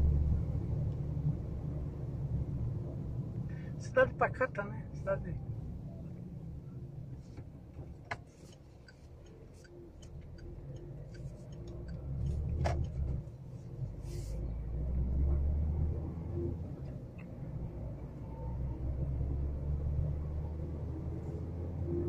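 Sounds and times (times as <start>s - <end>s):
car interior rumble: 0.0s - 22.0s.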